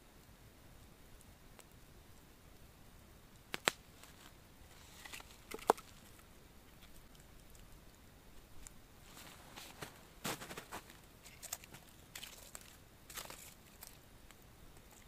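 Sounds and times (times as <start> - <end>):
sticks snapping by hand: 3.5 - 3.8, 5.1 - 5.9.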